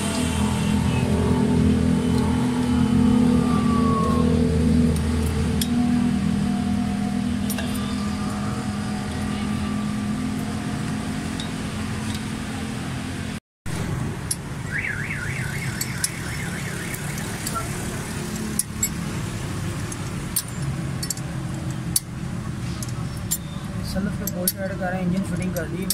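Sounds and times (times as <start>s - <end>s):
low mechanical hum: 0.0s - 25.9s
warbling electronic alarm tone: 5.8s - 10.3s, 14.7s - 17.8s
sharp metallic clicks: 13.7s - 25.9s.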